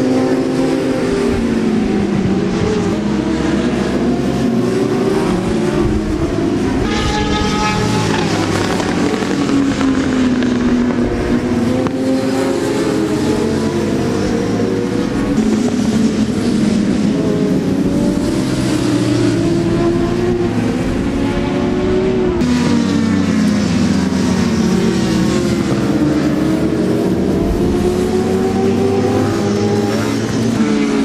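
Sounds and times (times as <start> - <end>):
racing motorcycle engines passing: 0.0 - 31.0
higher-pitched engine note: 5.3 - 11.0.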